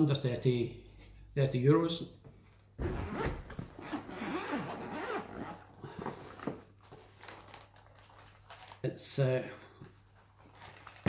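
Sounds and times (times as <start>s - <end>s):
zipper of case being pulled open: 2.8s - 5.8s.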